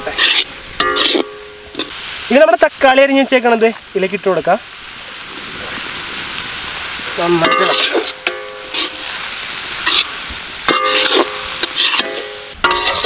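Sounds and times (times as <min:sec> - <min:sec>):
steel ladle scraping iron pan: 0:00.0 - 0:02.0, 0:07.4 - 0:13.0
tomatoes sizzling in hot oil: 0:00.0 - 0:13.0.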